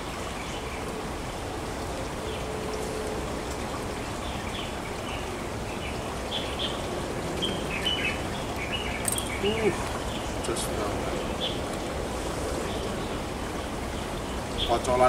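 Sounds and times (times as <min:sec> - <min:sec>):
stream water flowing: 0:00.0 - 0:15.0
high bird chirps: 0:07.4 - 0:10.3.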